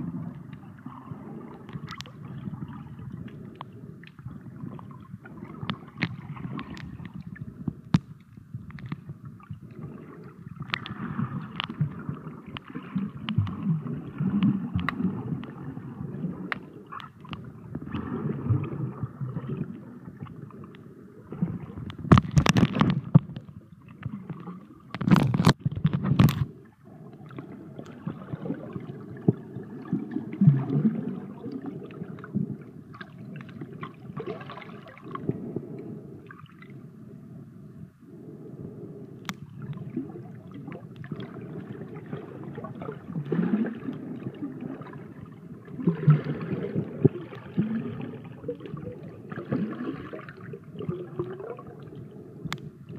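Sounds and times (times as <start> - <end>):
muffled underwater gurgling: 0.0 - 52.9.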